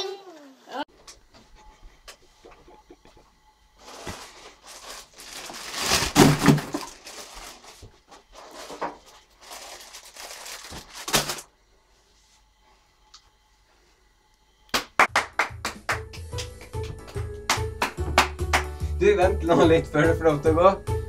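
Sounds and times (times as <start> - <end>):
plastic bag rustling: 3.8 - 11.5.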